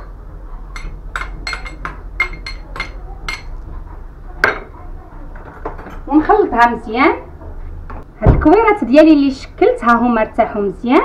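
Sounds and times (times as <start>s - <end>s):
spoon tapping a small bowl: 0.8s - 3.5s.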